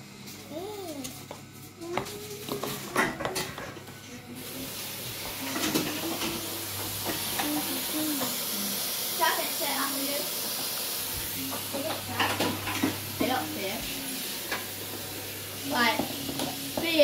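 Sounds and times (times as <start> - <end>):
bowls and utensils clinking: 1.9 - 4.2, 5.2 - 8.4, 11.4 - 17.0
tap water running into sink: 9.2 - 17.0.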